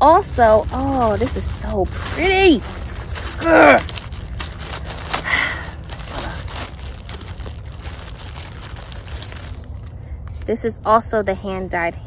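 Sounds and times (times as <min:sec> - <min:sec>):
packaging crinkling: 0:00.0 - 0:10.5.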